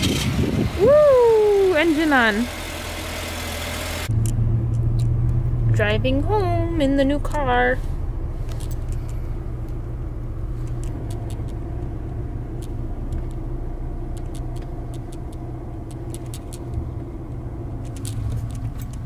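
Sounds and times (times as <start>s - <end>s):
engine and road noise rumble: 0.0s - 19.0s.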